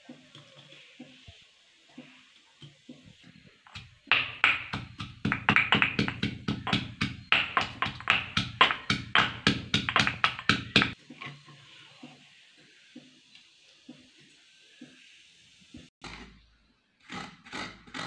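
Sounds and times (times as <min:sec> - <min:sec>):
pestle pounding in stone mortar: 0:03.7 - 0:11.0.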